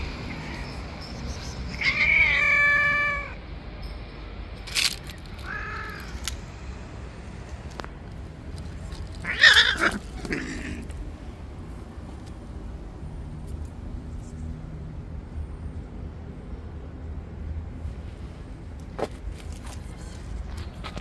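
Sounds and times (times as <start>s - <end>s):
cats yowling: 1.7s - 3.4s, 5.4s - 6.2s, 9.2s - 10.9s.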